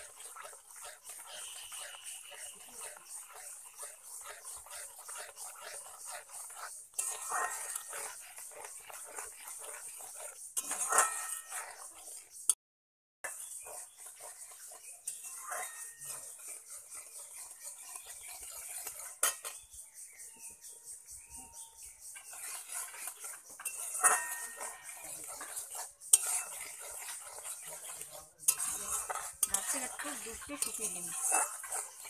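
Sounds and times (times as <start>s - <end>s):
metal spatula scraping pan: 0.0s - 12.5s, 13.3s - 19.7s, 22.1s - 32.0s
spatula clanking against pan: 26.1s - 26.6s.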